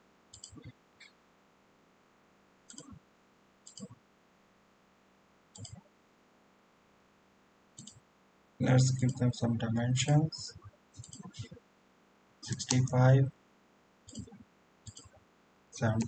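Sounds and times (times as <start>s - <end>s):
faint computer mouse clicks: 0.3s - 1.2s, 2.7s - 3.0s, 3.6s - 4.0s, 5.6s - 5.9s, 7.8s - 8.0s, 11.0s - 11.6s, 12.4s - 13.0s, 14.1s - 15.2s.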